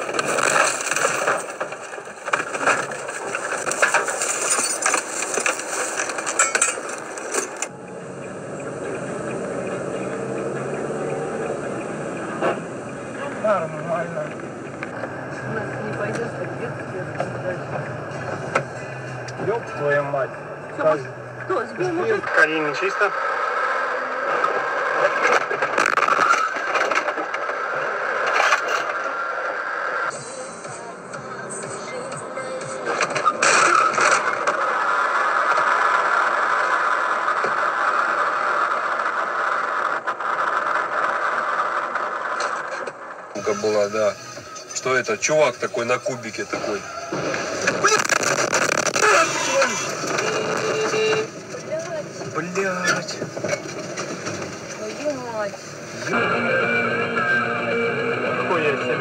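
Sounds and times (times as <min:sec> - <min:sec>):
branches scraping and snapping on car: 0:00.0 - 0:07.7, 0:46.8 - 0:51.3
road and engine noise: 0:00.0 - 0:59.0.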